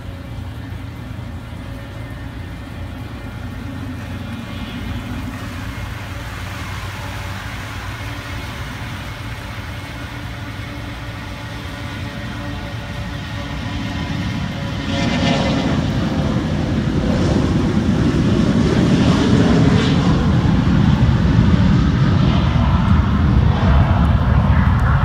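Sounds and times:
distant airliner jet rumble: 0:00.0 - 0:25.0.

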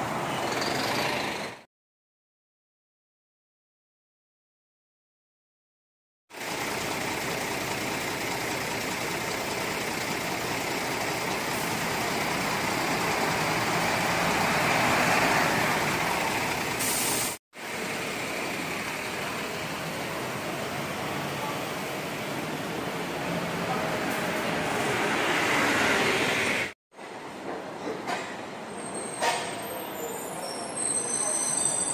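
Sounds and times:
bus engine running: 0:06.4 - 0:26.7
bus diesel engine passing: 0:06.4 - 0:26.8.

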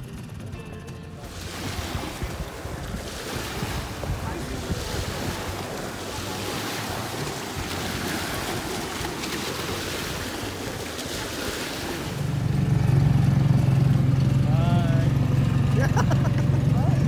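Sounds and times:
waves washing onto pebbles: 0:01.2 - 0:12.7
wind buffeting microphone: 0:01.2 - 0:14.4.

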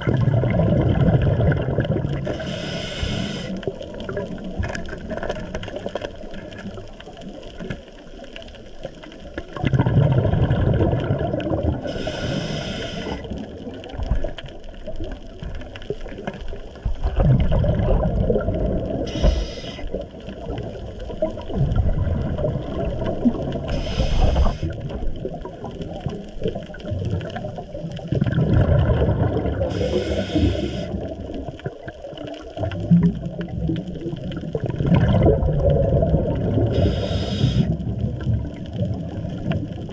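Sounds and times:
bubbling exhaled air: 0:00.0 - 0:05.2, 0:09.5 - 0:14.4, 0:17.0 - 0:31.9, 0:32.5 - 0:39.9
scuba regulator hissing inhalations: 0:02.3 - 0:03.7, 0:11.8 - 0:13.4, 0:19.0 - 0:20.0, 0:23.7 - 0:24.8, 0:29.7 - 0:31.1, 0:36.7 - 0:37.8.

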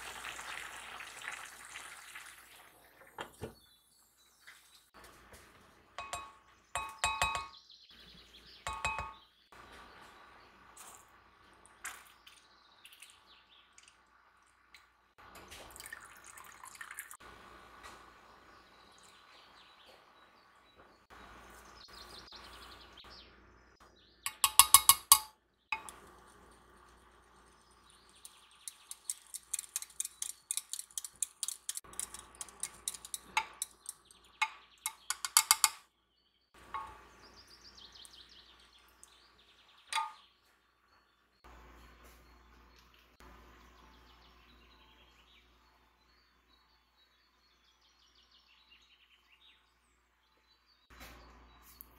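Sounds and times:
birds chirping: 0:06.0 - 0:13.8, 0:17.9 - 0:51.9
small irregular clicks and taps: 0:28.1 - 0:35.8.

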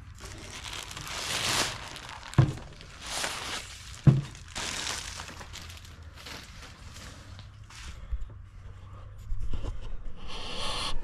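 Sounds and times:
plastic bag rustling: 0:00.0 - 0:08.1
dull thumps: 0:01.6 - 0:04.8.

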